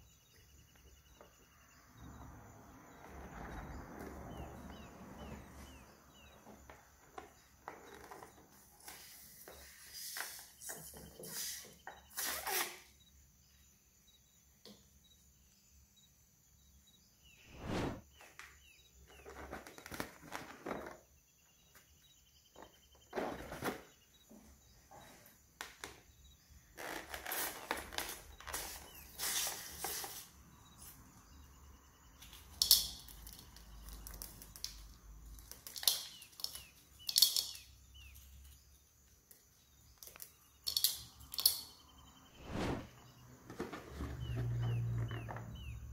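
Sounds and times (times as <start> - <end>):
rustling and crinkling of balloons: 19.1 - 21.1.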